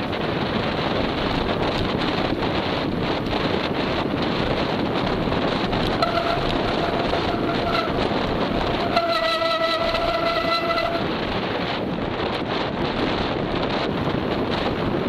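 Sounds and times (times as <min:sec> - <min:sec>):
wind buffeting microphone: 0:00.0 - 0:15.0
high-pitched horn-like tone: 0:05.9 - 0:11.2.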